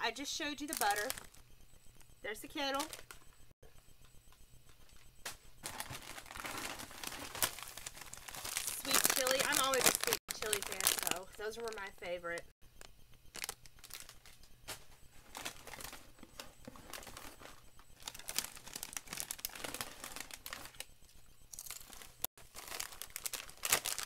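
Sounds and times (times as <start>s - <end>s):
plastic snack bags crinkling: 0.7s - 1.3s, 2.7s - 3.1s, 5.6s - 12.0s, 13.3s - 14.4s, 15.3s - 16.0s, 18.0s - 20.8s, 21.5s - 24.0s.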